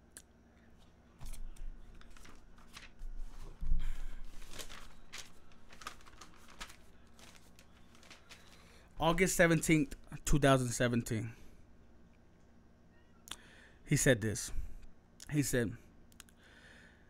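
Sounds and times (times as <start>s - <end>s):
paper rustling and crinkling: 0.8s - 8.8s.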